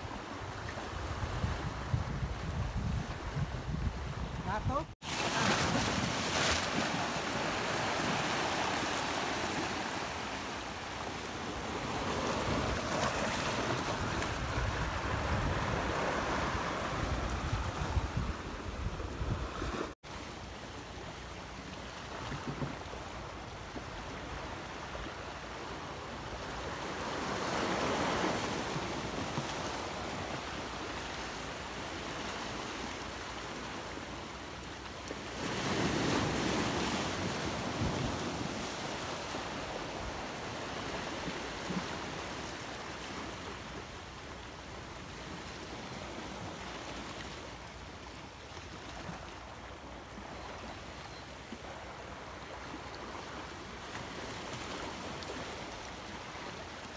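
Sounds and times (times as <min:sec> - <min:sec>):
sea surf washing against rocks: 0:00.0 - 0:20.3, 0:22.1 - 0:34.3, 0:35.1 - 0:43.9
wind buffeting microphone: 0:00.9 - 0:04.9, 0:11.7 - 0:19.9.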